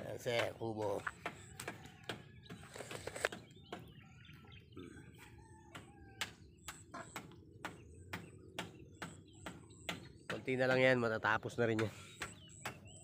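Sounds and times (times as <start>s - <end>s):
rooster crowing: 5.2s - 6.3s.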